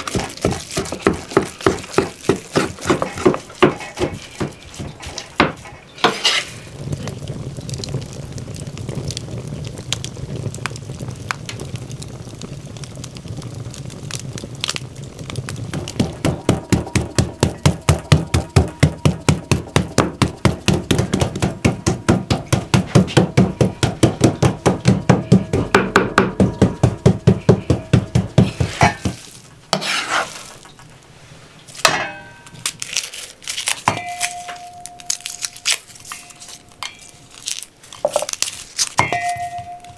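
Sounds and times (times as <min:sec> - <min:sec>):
knife chopping on wooden board: 0:00.0 - 0:06.2
metal pot ringing: 0:16.2 - 0:19.4, 0:31.9 - 0:32.7, 0:33.9 - 0:37.4, 0:39.0 - 0:39.9.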